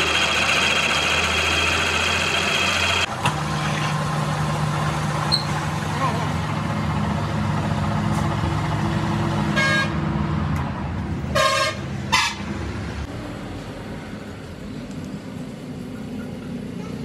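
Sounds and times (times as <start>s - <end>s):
vehicle horn honking: 9.5s - 10.0s, 11.3s - 12.4s.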